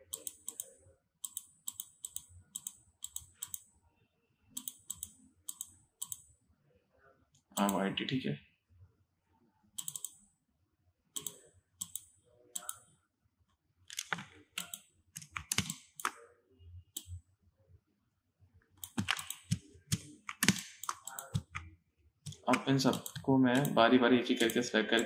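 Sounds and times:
computer mouse and keyboard clicking: 0.0 - 3.7, 4.6 - 6.3, 7.6 - 7.8, 9.8 - 10.2, 13.9 - 16.2, 18.8 - 21.7, 22.3 - 25.0.

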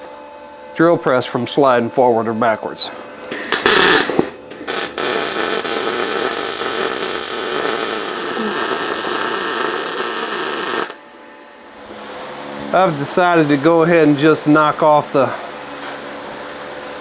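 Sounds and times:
arc welding hiss: 3.3 - 11.9.

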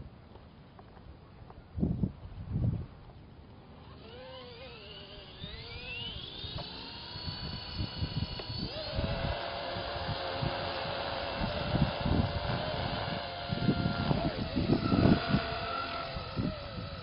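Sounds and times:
rc helicopter motor whine: 3.6 - 17.0.

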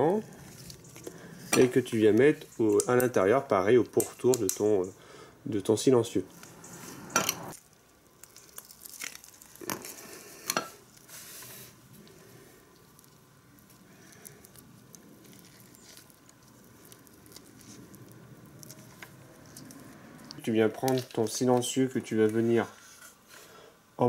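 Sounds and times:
paste squishing and rubbing: 0.2 - 3.1, 10.8 - 21.6.

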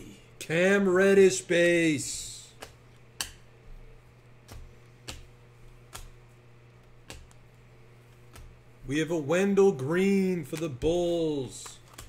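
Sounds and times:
low steady hum: 0.0 - 12.0
trading cards flipping: 2.5 - 8.6, 10.4 - 12.0.

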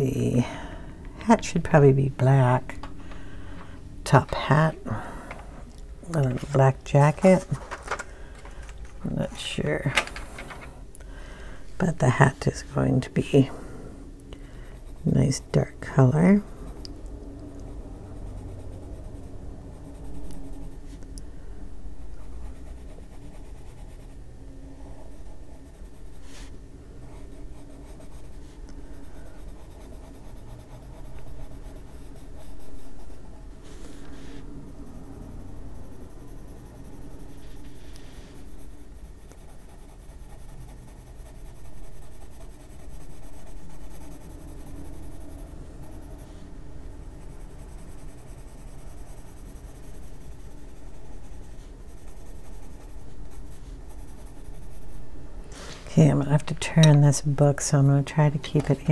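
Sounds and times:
pencil scratching on paper: 22.0 - 24.2, 24.8 - 57.2.

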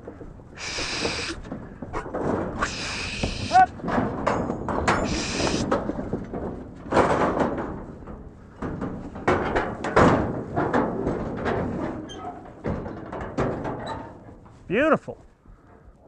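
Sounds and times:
gate rattling: 0.2 - 14.2
metal gate bangs and clanks: 3.7 - 14.3.

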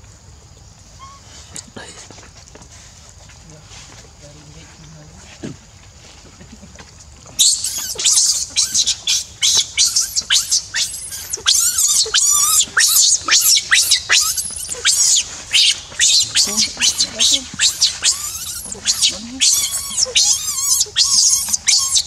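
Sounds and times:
baby monkey screaming: 7.4 - 22.0.

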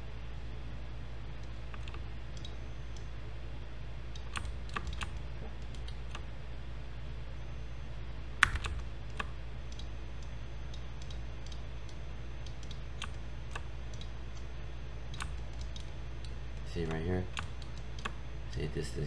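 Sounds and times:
steady low hum: 0.0 - 19.0
keyboard and mouse clicks: 1.4 - 3.1, 4.1 - 6.2, 8.4 - 14.5, 15.1 - 18.2.

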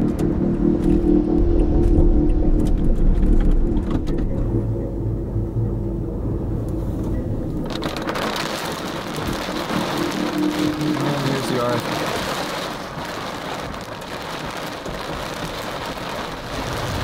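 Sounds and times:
road rumble: 0.0 - 17.0
heavy rain and wind hiss: 6.5 - 17.0.

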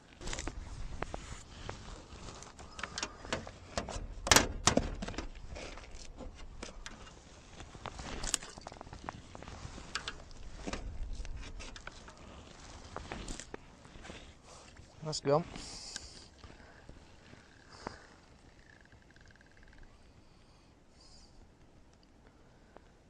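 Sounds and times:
catapult clicks and rustles: 0.0 - 14.8.

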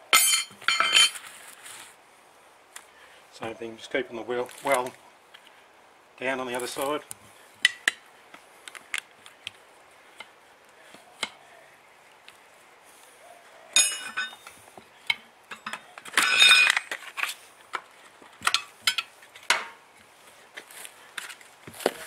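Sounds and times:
ringing metal clanks: 0.1 - 1.2, 13.8 - 14.4, 15.5 - 16.9
tyre levers clinking on rim: 13.7 - 14.5, 15.1 - 17.4.

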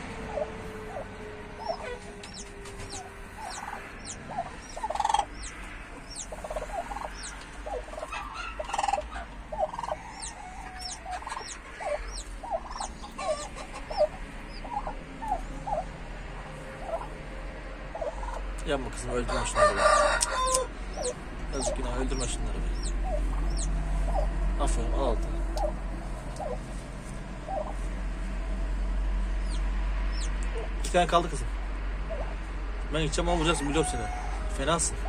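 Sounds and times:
chicks peeping: 0.2 - 17.2, 17.9 - 26.9, 27.5 - 27.9, 29.4 - 30.9
turkey hen clucking softly: 0.3 - 17.1, 17.9 - 18.4, 19.2 - 24.4, 25.5 - 26.8, 27.5 - 27.8, 32.0 - 32.4, 33.3 - 35.0.

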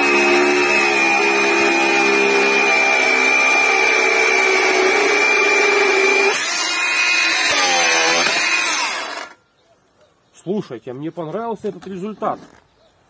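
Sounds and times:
angle grinder cutting steel: 0.0 - 9.4.

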